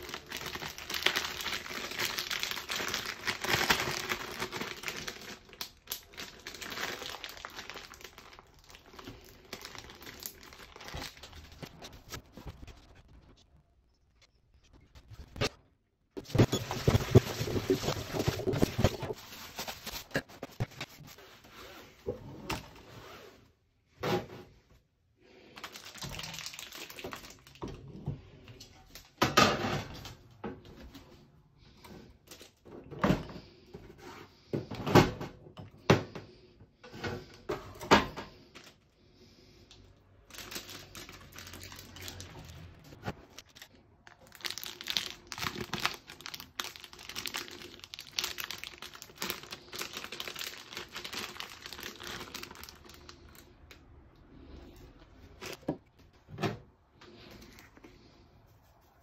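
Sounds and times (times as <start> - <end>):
plastic bag crinkling: 0.0 - 12.2, 16.2 - 21.0, 25.6 - 27.6, 40.2 - 53.8.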